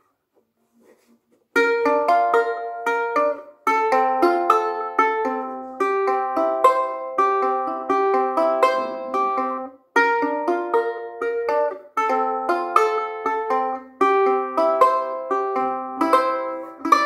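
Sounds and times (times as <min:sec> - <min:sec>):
ukulele fingerpicked melody: 0:00.8 - 0:17.0.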